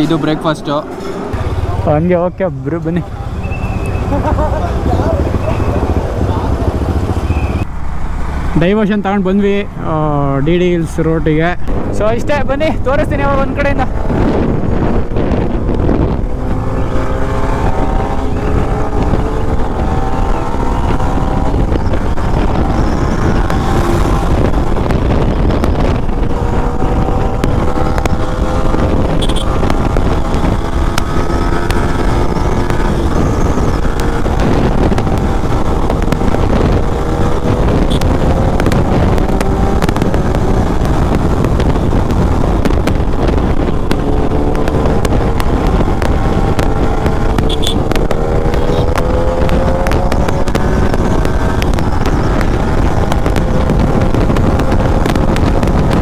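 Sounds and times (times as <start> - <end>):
wind rush on microphone: 0.0 - 56.0
motorcycle engine running: 3.0 - 7.7, 13.9 - 56.0.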